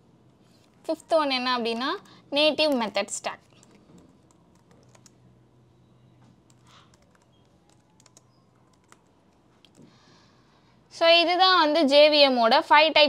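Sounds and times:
keyboard typing: 0:01.6 - 0:05.3, 0:06.0 - 0:09.9.

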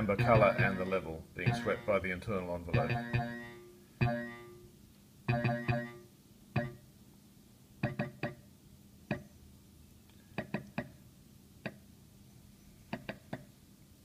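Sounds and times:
synthesizer percussive notes: 0:00.0 - 0:00.9, 0:01.5 - 0:01.9, 0:02.7 - 0:04.5, 0:05.3 - 0:06.0, 0:07.8 - 0:08.4.

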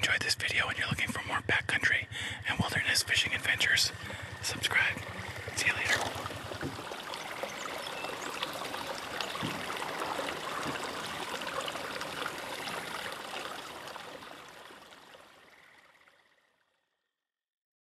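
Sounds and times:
water trickling and gurgling: 0:02.1 - 0:17.0.

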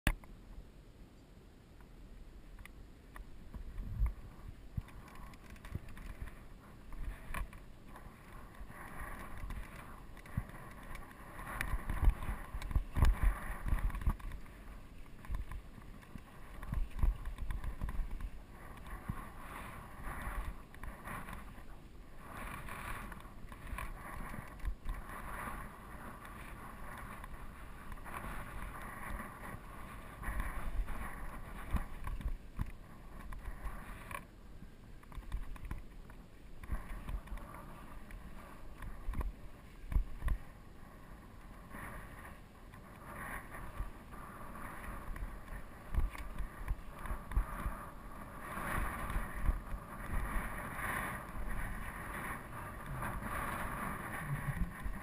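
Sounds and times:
bike tyres rolling on dirt: 0:02.6 - 0:55.0
wind on microphone: 0:02.6 - 0:55.0
bike rattling over bumps: 0:03.6 - 0:34.3, 0:41.6 - 0:55.0.

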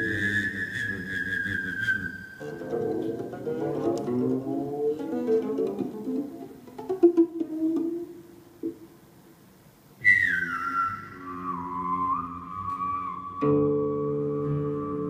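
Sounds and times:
person whistling into microphone: 0:00.0 - 0:02.7, 0:10.0 - 0:15.0
guqin plucked: 0:02.5 - 0:08.2.

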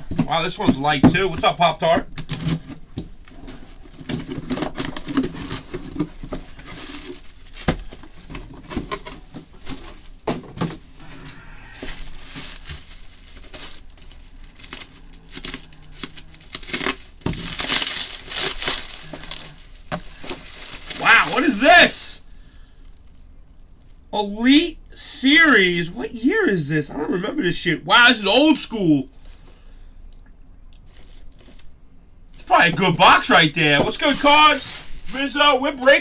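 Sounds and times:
bubble wrap crinkling: 0:02.1 - 0:24.2, 0:29.1 - 0:29.8, 0:30.7 - 0:36.0.

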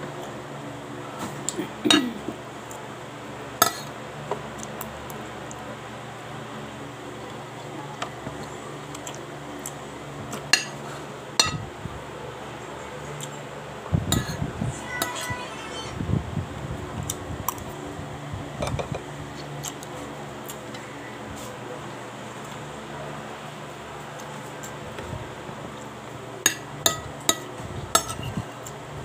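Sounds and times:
cutlery clinking on a plate: 0:28.0 - 0:28.3.

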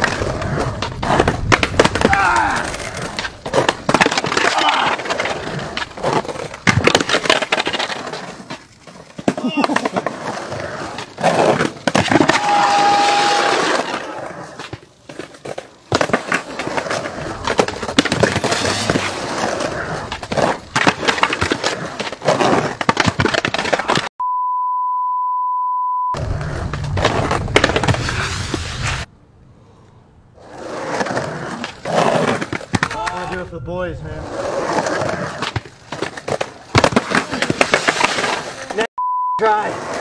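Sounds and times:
skateboard wheels rolling on concrete: 0:00.0 - 0:24.1, 0:26.2 - 0:40.0
skateboards clattering and slapping: 0:00.0 - 0:24.1, 0:26.2 - 0:28.8, 0:30.4 - 0:33.5, 0:34.1 - 0:40.0
censor bleep: 0:24.2 - 0:26.2, 0:39.0 - 0:39.6.

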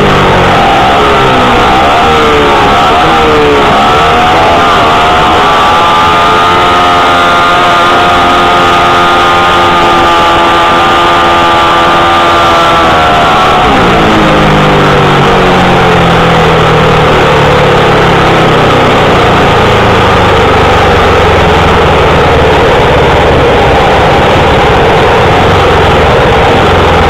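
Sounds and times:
motorcycle engine at high revs: 0:00.0 - 0:27.0
rushing wind noise: 0:00.0 - 0:27.0.

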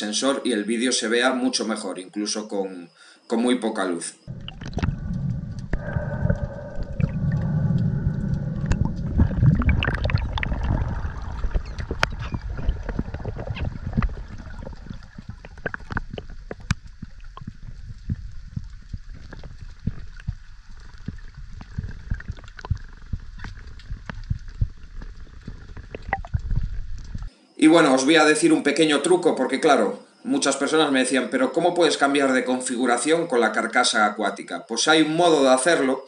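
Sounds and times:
steady droning tone: 0:04.3 - 0:16.0
muffled underwater rumble: 0:04.3 - 0:27.3
sharp underwater clicks: 0:04.3 - 0:27.3.

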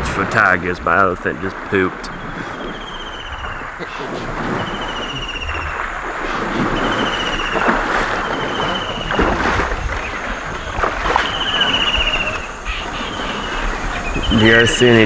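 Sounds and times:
water sloshing and splashing: 0:00.0 - 0:15.0.

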